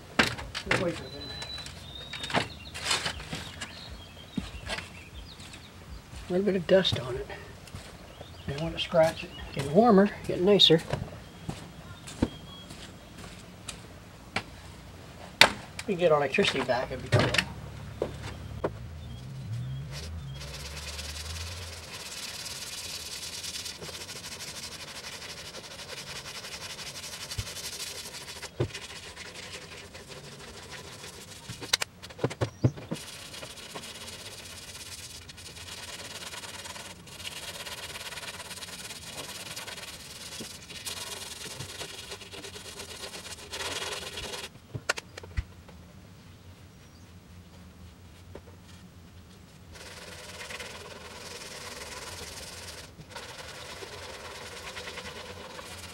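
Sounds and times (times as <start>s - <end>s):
hand sanding on metal: 19.9s - 31.8s, 32.9s - 44.5s, 49.7s - 55.9s.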